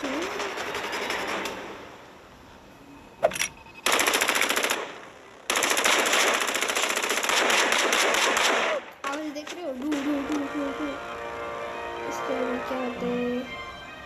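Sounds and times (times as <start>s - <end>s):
automatic gunfire: 3.8s - 8.9s.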